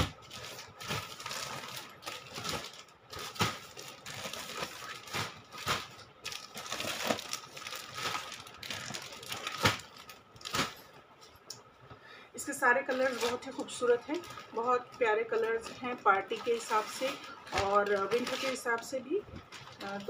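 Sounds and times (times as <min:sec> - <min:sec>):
plastic packaging crinkling: 0:00.0 - 0:11.5, 0:12.8 - 0:20.0.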